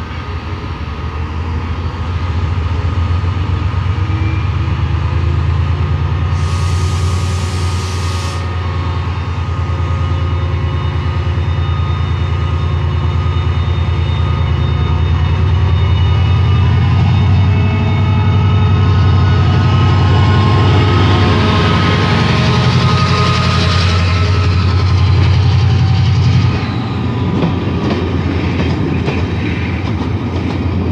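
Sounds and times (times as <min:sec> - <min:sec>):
diesel locomotive engine throbbing: 0:00.0 - 0:30.9
brief hiss: 0:06.4 - 0:08.5.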